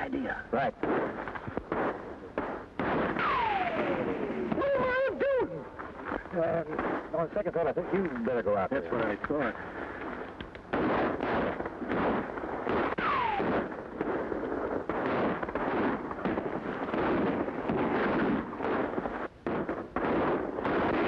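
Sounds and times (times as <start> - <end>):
gunshots: 0.6 - 4.9, 10.7 - 21.0
falling ricochet whine: 0.8 - 5.6, 10.7 - 14.3.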